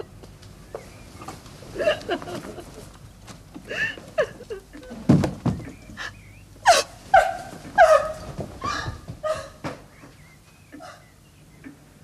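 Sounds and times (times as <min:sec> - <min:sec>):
woman sobbing: 0:03.7 - 0:05.1, 0:05.8 - 0:08.0, 0:08.6 - 0:09.6.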